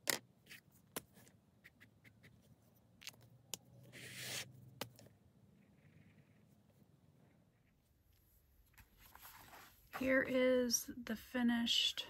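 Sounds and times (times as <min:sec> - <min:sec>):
pen scratching on paper: 0:03.9 - 0:04.5.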